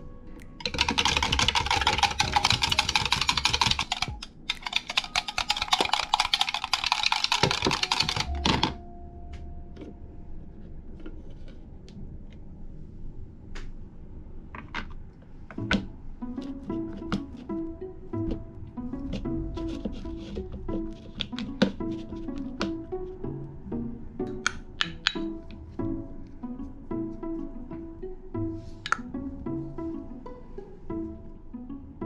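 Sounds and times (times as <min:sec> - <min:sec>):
whisk clattering against glass: 0:00.6 - 0:08.4.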